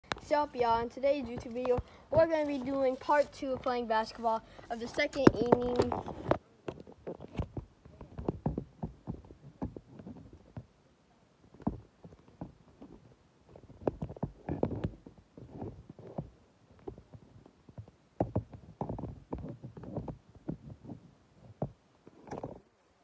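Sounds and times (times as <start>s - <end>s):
footsteps on grass: 0.7s - 6.2s
phone handling bumps and rustles: 4.8s - 10.6s.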